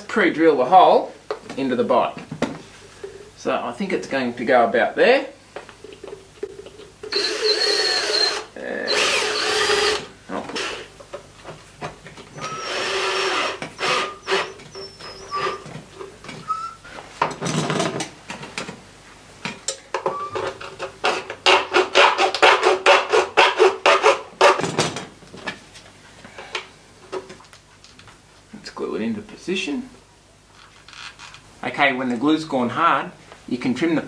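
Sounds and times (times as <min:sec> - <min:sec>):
cordless drill driving screw: 0:07.1 - 0:10.9, 0:12.4 - 0:15.6
plastic squeaking: 0:13.6 - 0:16.8.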